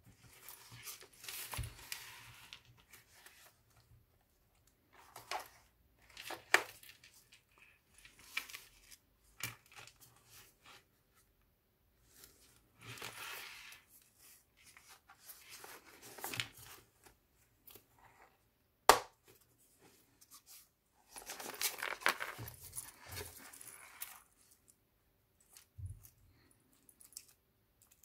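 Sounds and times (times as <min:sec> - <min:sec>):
paper rustling and crinkling: 0:12.1 - 0:17.8, 0:19.8 - 0:24.5.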